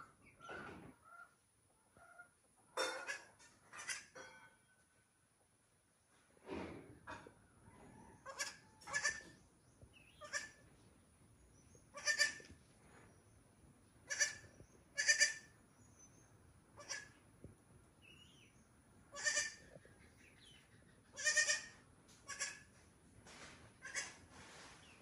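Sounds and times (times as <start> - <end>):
goat kid bleating: 8.3 - 9.3, 10.2 - 10.6, 11.9 - 12.5, 14.0 - 15.5, 16.8 - 17.2, 19.1 - 19.7, 21.2 - 22.7, 23.8 - 24.2.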